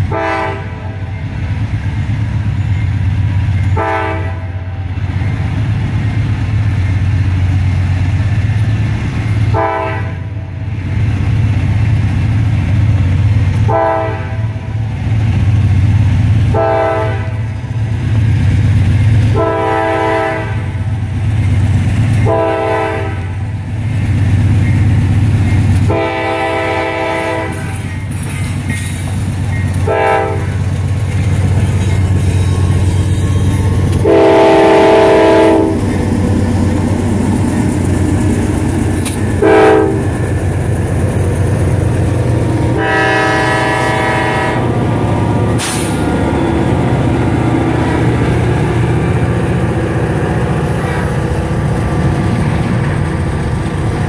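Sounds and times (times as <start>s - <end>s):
locomotive air horn blasts: 0.0s - 1.1s, 3.8s - 4.9s, 9.5s - 10.5s, 13.6s - 14.7s, 16.5s - 17.6s, 19.2s - 20.8s, 22.2s - 23.4s, 25.9s - 27.8s, 29.8s - 30.6s, 34.0s - 35.8s, 39.4s - 40.1s, 42.8s - 44.8s
diesel engine drone: 15.9s - 54.0s.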